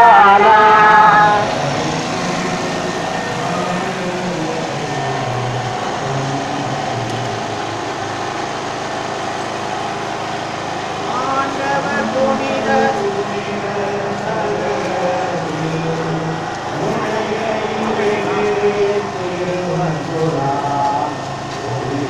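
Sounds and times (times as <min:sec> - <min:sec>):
portable generator engine humming: 0:00.0 - 0:22.0
singing through loudspeaker horns: 0:00.0 - 0:22.0.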